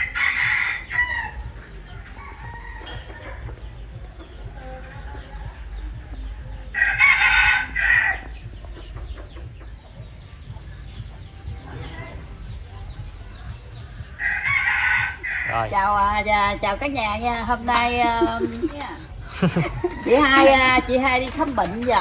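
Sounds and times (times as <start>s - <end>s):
rooster crowing: 0.0s - 3.9s, 6.6s - 8.4s, 14.2s - 16.0s, 19.3s - 21.0s.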